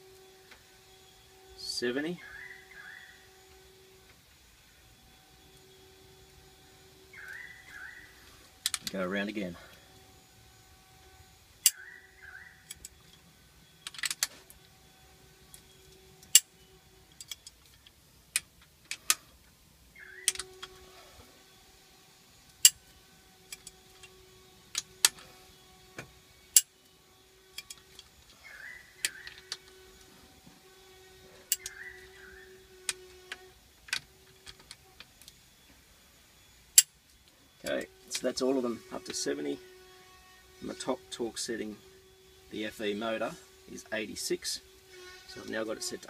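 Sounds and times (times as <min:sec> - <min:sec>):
faint steady hum: 0:00.0 - 0:46.0
torque wrench clicking: 0:31.5 - 0:31.8.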